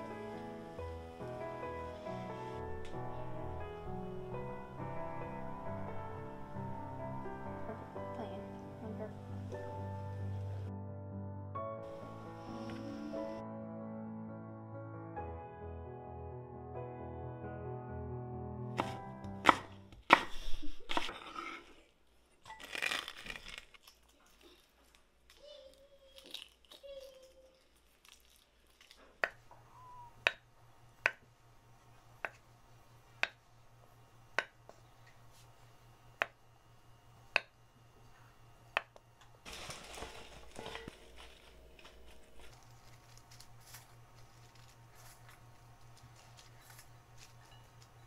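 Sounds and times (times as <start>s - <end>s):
rustling: 39.5s - 48.0s.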